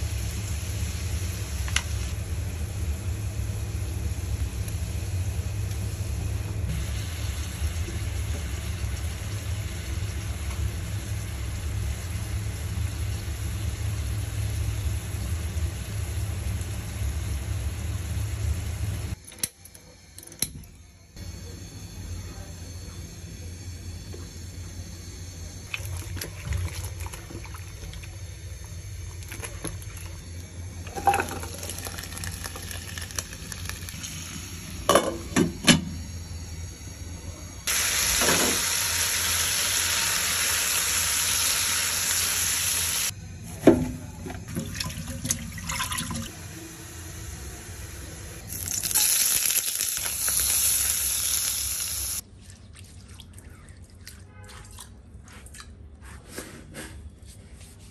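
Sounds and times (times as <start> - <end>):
food sizzling in oil: 4.7 - 19.2, 37.7 - 43.1, 45.8 - 52.2.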